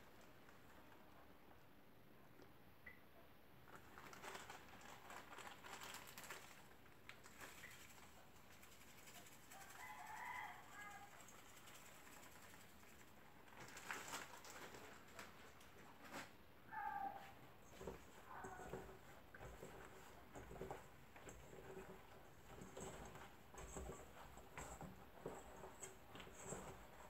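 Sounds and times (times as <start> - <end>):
hands rustling vegetables in bowl: 3.7 - 16.4
faint animal call: 16.7 - 17.4.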